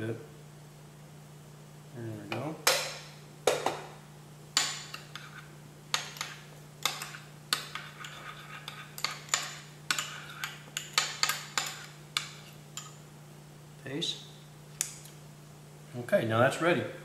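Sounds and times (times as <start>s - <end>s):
low steady hum: 0.0s - 17.0s
utensil clinking against dish: 4.6s - 13.0s.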